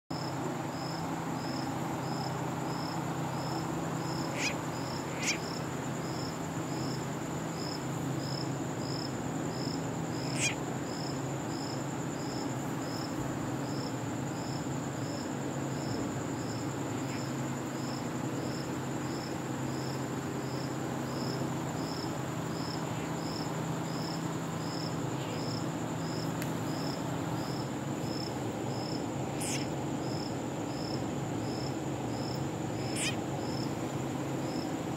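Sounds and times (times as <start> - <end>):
crickets trilling: 0.1 - 34.9
insect chirping: 0.1 - 34.9
low steady hum: 0.1 - 34.9.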